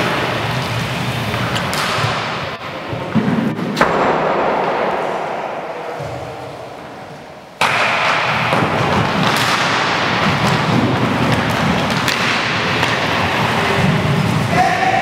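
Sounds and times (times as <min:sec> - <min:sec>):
skate wheels rolling on floor: 0:00.0 - 0:03.8, 0:08.1 - 0:14.7
sticks and puck clacking: 0:00.0 - 0:15.0.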